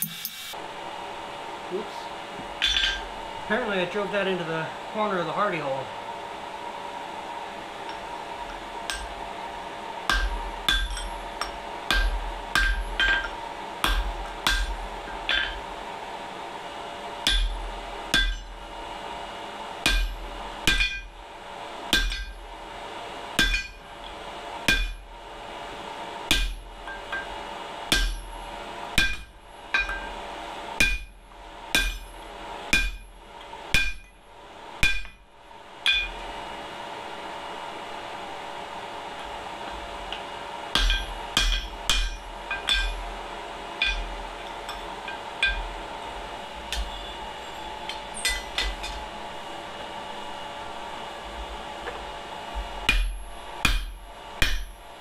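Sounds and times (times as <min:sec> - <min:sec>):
hammer striking hot steel on anvil: 0:00.0 - 0:00.6, 0:02.6 - 0:03.1, 0:07.8 - 0:09.3, 0:10.0 - 0:15.7, 0:17.2 - 0:18.6, 0:19.8 - 0:21.2, 0:21.9 - 0:22.5, 0:23.4 - 0:25.1, 0:26.3 - 0:28.4, 0:29.0 - 0:30.2, 0:30.8 - 0:34.2, 0:34.8 - 0:36.3, 0:40.1 - 0:43.1, 0:43.8 - 0:45.8, 0:46.6 - 0:47.2, 0:47.8 - 0:49.1, 0:52.8 - 0:54.9
blower hum: 0:00.0 - 0:55.0.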